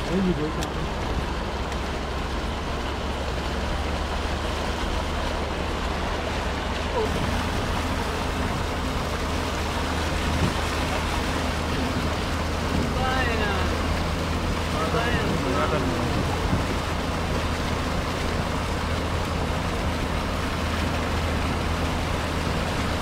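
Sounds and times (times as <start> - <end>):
floodwater rushing: 0.0 - 23.0
wind rumble on microphone: 5.1 - 23.0.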